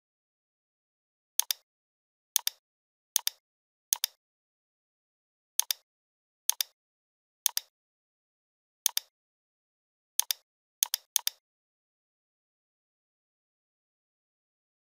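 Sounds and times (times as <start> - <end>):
computer mouse clicking: 1.4 - 1.6, 2.4 - 2.6, 3.2 - 4.2, 5.6 - 5.8, 6.5 - 6.8, 7.5 - 7.7, 8.9 - 9.1, 10.2 - 11.4.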